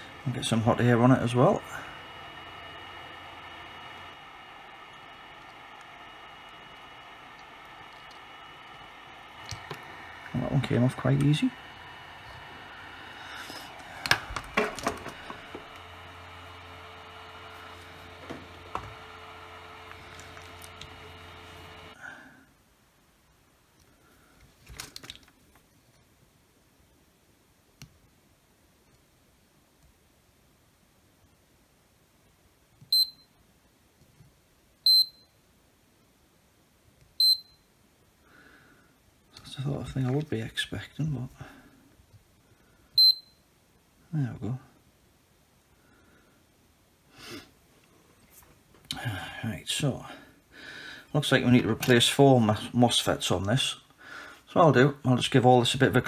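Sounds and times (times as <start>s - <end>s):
low hum: 0.0s - 22.0s
hot air blower hissing: 0.0s - 22.3s
multimeter high-pitched beeps: 34.9s - 35.3s, 37.2s - 37.6s, 43.0s - 43.4s.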